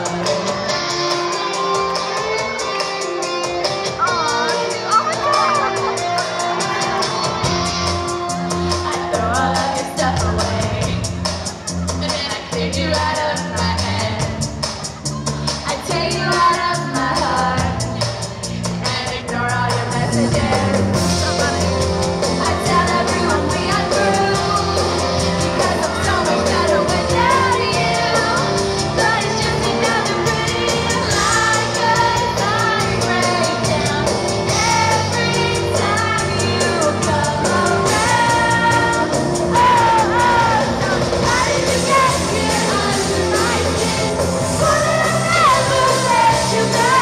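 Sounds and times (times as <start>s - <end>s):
pop-rock band playing loud: 0.0s - 47.0s
women singing into microphones: 8.8s - 11.1s, 15.2s - 21.8s, 22.4s - 47.0s.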